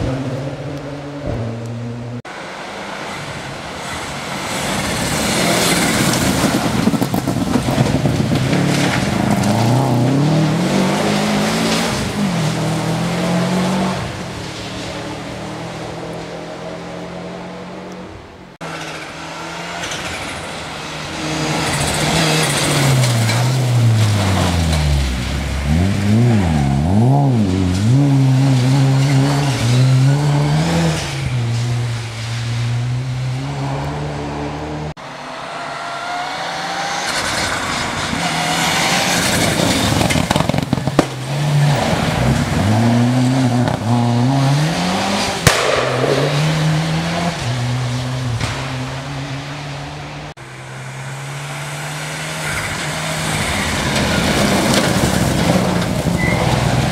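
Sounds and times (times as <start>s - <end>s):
rally car engine revving: 0.0s - 56.9s
sharp crack: 37.0s - 42.6s, 44.9s - 47.6s.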